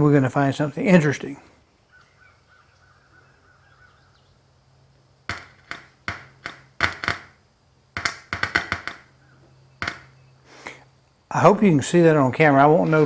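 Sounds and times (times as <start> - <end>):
speaker clicking: 8.0 - 10.2.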